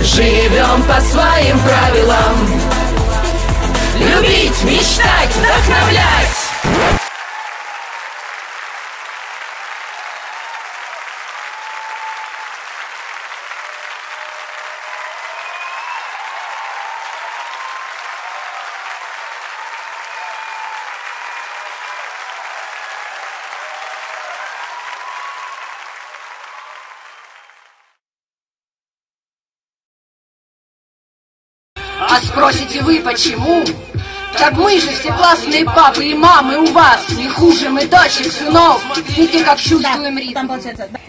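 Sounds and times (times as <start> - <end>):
crowd applause: 4.9 - 28.0.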